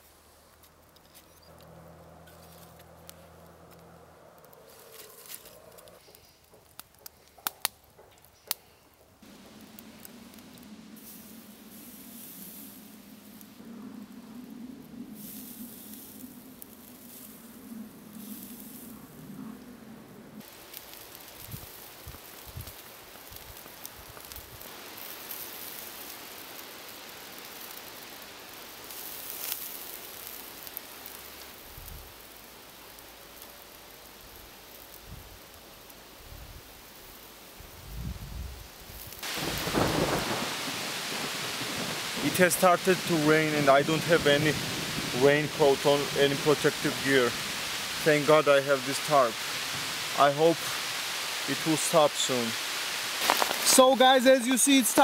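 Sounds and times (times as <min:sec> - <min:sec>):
sticks and leaves rustling: 0:00.0 - 0:19.6, 0:20.4 - 0:37.6, 0:38.6 - 0:55.0
fire hissing: 0:00.0 - 0:55.0
light rain on leaf litter: 0:00.0 - 0:55.0
sharp crackling snaps: 0:00.4 - 0:19.8, 0:20.4 - 0:37.8, 0:38.6 - 0:55.0.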